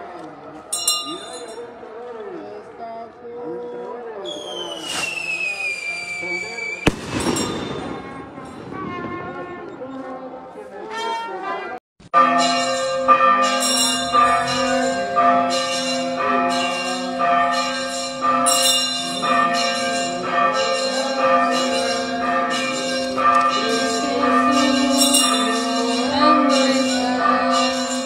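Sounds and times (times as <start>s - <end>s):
church bells ringing: 0.7s - 1.7s, 6.9s - 9.5s, 12.1s - 28.0s.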